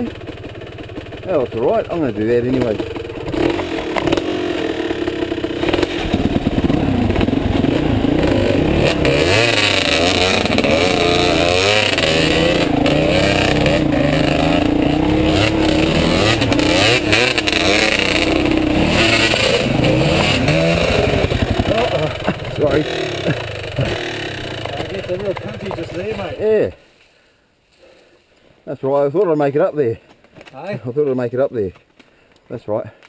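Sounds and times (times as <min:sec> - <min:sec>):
dirt bike engine revving: 0:00.0 - 0:26.8
knocks over bumps: 0:05.6 - 0:26.3.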